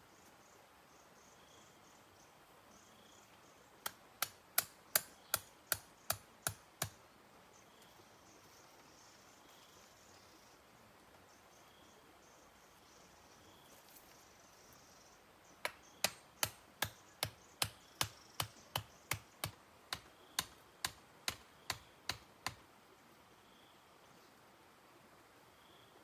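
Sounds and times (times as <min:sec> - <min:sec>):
faint background hiss: 0:00.0 - 0:26.0
hand tool striking bamboo: 0:03.8 - 0:07.0, 0:15.6 - 0:22.6.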